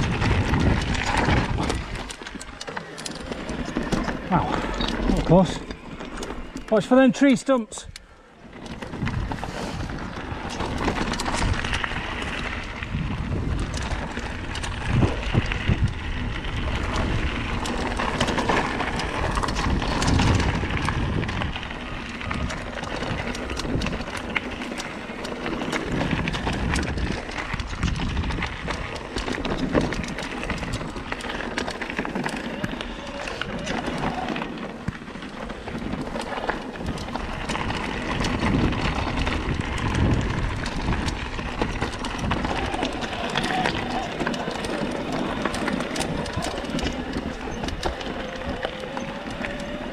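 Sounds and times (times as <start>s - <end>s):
wind buffeting microphone: 0.0s - 2.5s, 7.8s - 32.0s, 32.8s - 49.9s
bike clattering: 0.0s - 49.9s
bike tyres rolling on dirt: 0.0s - 49.9s.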